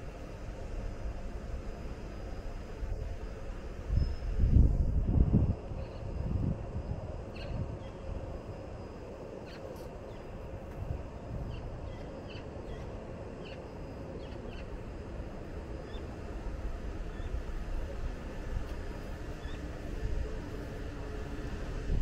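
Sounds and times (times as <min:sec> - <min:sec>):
faint steady hum: 0:00.0 - 0:22.0
wind buffeting microphone: 0:02.7 - 0:08.7, 0:10.1 - 0:13.1, 0:14.7 - 0:22.0
bird chirps: 0:11.5 - 0:14.7.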